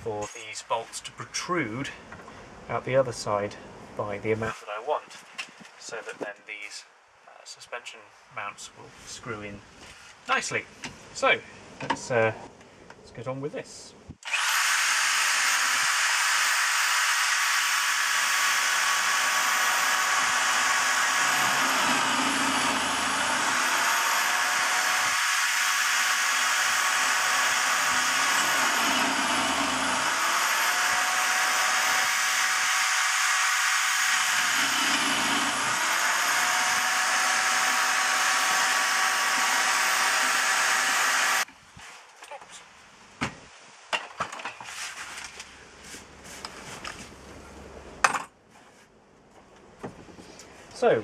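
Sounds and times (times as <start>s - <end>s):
drill bit cutting wood: 14.2s - 41.5s
electric drill whining: 14.2s - 41.5s.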